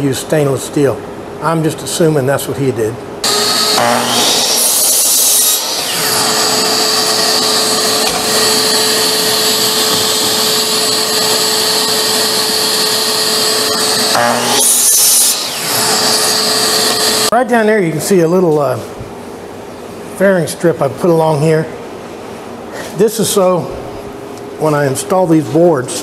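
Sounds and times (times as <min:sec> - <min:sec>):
miter saw cutting wood: 0:03.2 - 0:17.3
saw motor humming: 0:03.2 - 0:17.3.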